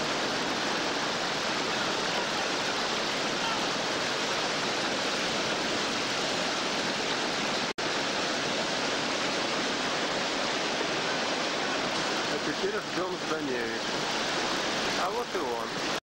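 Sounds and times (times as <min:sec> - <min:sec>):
whitewater rapids roaring: 0:00.0 - 0:16.0.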